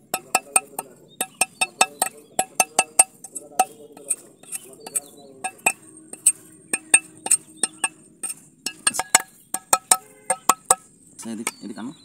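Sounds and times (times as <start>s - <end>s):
machete chopping coconut husk: 0.0s - 7.9s.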